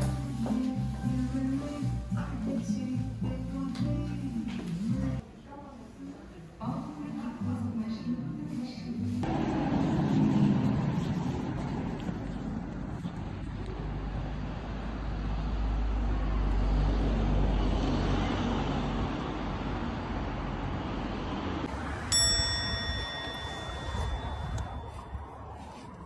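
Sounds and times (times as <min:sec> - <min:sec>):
low rumble of moving vehicle: 0:09.2 - 0:26.0
bright ringing ding: 0:22.1 - 0:25.3.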